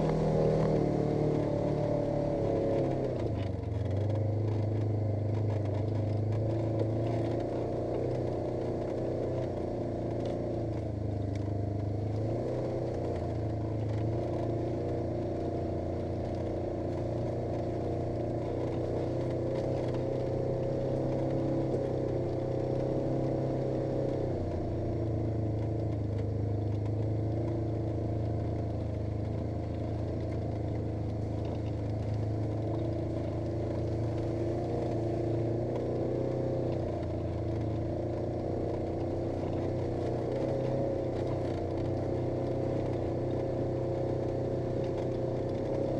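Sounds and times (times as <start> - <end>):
vehicle engine running: 0.0 - 45.9.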